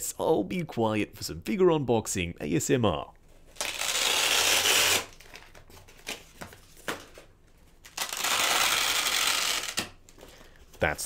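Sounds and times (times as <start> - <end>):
velcro straps ripping open: 3.5 - 6.2, 7.8 - 10.0.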